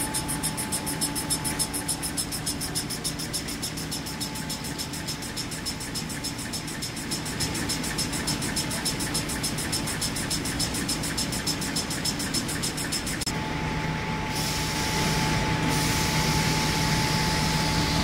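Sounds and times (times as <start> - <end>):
tissue rewinder machine running: 0.0 - 13.3.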